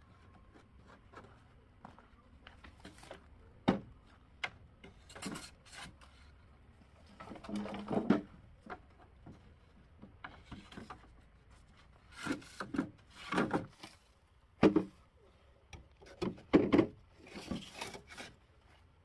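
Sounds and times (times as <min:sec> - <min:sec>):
wood scraping and knocking: 0:07.0 - 0:14.0, 0:14.6 - 0:15.0, 0:16.0 - 0:18.4.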